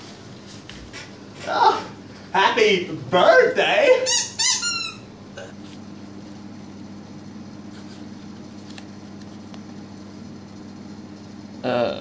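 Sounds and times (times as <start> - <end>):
room hum: 0.0 - 12.0.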